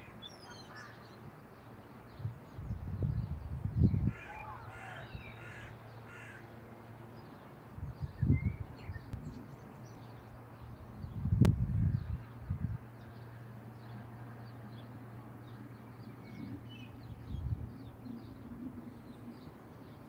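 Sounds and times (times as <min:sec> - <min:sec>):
wind rumble on microphone: 0:02.1 - 0:05.4, 0:07.7 - 0:20.0
bird calling: 0:04.1 - 0:06.4.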